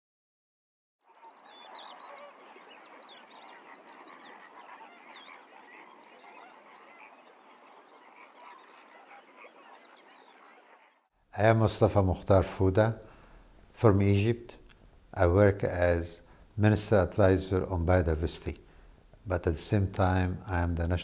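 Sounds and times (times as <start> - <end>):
flock of birds calling: 1.1 - 11.1.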